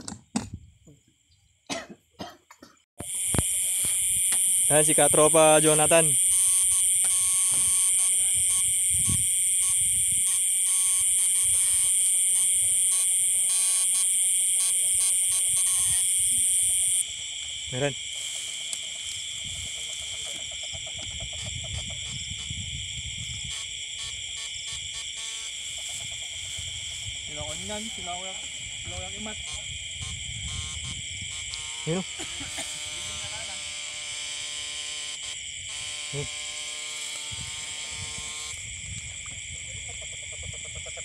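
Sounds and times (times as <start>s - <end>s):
insects trilling: 0.0s - 41.0s
electrical buzz of eel shocker: 3.0s - 17.0s, 29.4s - 38.6s
frog calling in rapid pulses: 3.0s - 17.1s, 17.7s - 38.6s, 39.5s - 41.0s.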